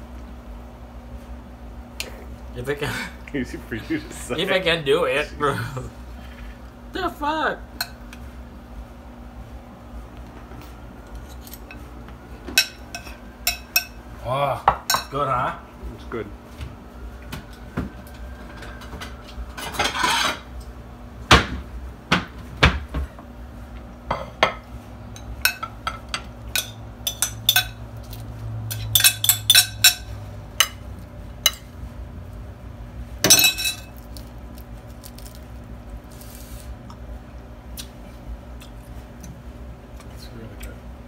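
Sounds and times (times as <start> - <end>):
spoon clinking on ceramic dishes: 12.6 - 14.0, 25.2 - 27.8, 28.7 - 30.8, 33.3 - 33.9.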